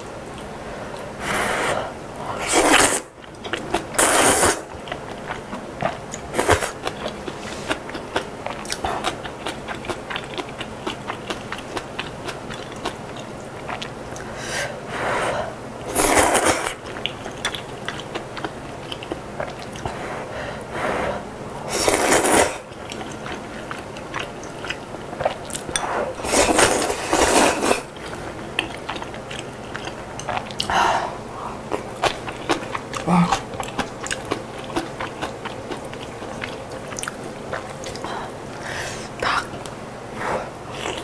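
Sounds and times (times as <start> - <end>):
slurping noodles and broth: 1.2 - 3.1, 4.0 - 4.7, 14.9 - 16.8, 19.8 - 22.7, 25.2 - 28.0
wet chewing: 2.6 - 14.4, 16.0 - 20.0, 21.8 - 30.8, 31.5 - 38.6.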